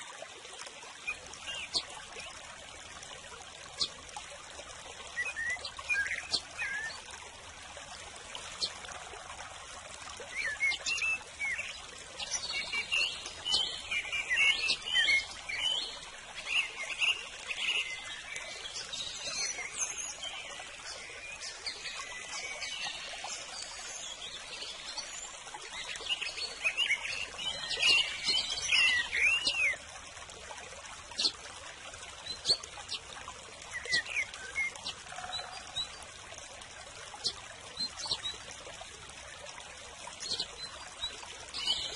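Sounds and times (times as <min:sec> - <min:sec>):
running water trickling: 0:00.0 - 0:41.9
small birds chirping: 0:01.0 - 0:02.4, 0:05.1 - 0:07.1, 0:10.3 - 0:29.8, 0:31.1 - 0:31.4, 0:32.2 - 0:36.1, 0:37.1 - 0:38.5, 0:40.1 - 0:41.9.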